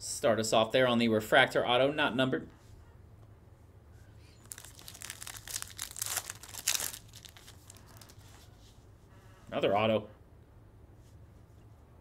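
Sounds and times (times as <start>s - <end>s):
foil wrapper crinkling and tearing: 4.4s - 8.4s.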